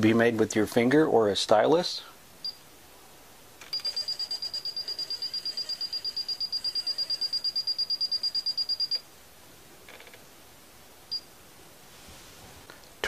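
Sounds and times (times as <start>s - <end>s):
rapid high-pitched electronic beeps: 3.7s - 9.0s.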